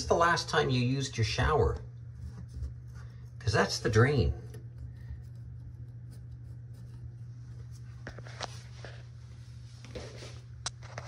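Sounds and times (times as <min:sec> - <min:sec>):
steady low hum: 0:00.0 - 0:11.0
faint rubbing and tapping: 0:02.1 - 0:03.6.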